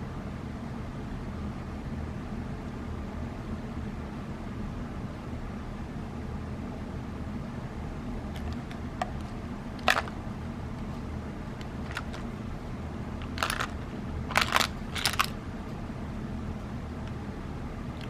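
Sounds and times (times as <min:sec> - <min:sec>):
steady low hum: 0:00.0 - 0:18.0
metal tin clicking and rattling: 0:13.2 - 0:15.3.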